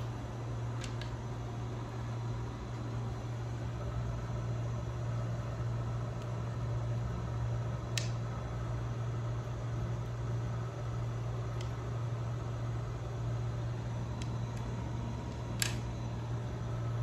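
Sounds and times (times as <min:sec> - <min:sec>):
low mechanical hum: 0:00.0 - 0:17.0
sharp click: 0:07.9 - 0:08.2, 0:15.3 - 0:15.9.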